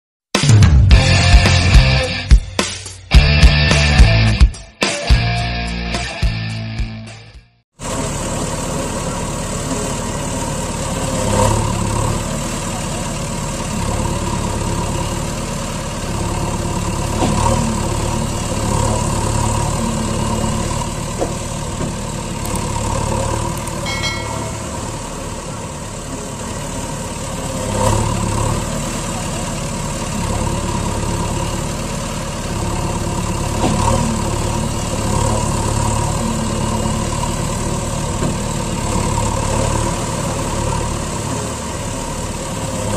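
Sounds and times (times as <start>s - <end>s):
truck engine idling: 7.8s - 42.9s.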